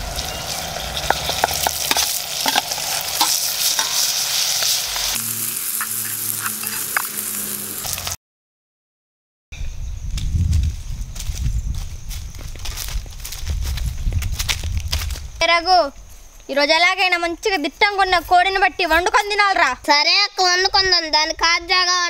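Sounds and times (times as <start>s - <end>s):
liver sizzling in a metal pot: 0.0s - 8.2s
oil popping and crackling: 0.0s - 8.2s.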